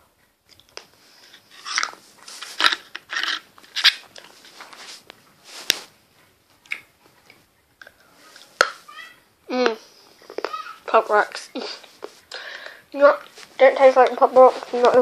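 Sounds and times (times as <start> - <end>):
candy crunching while chewed: 1.5 - 4.4.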